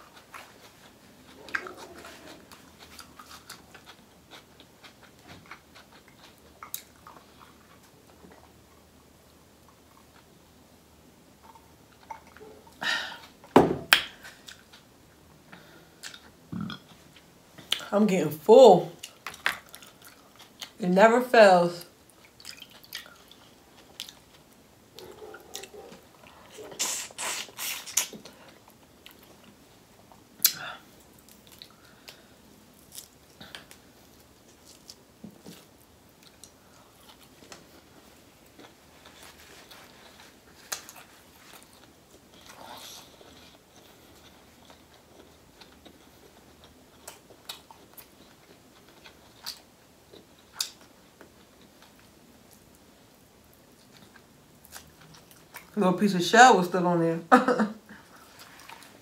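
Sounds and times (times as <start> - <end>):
wet chewing: 0.0 - 8.6, 19.0 - 20.8, 22.1 - 29.6, 53.5 - 55.8
lip smacks: 25.0 - 28.4, 30.4 - 30.6.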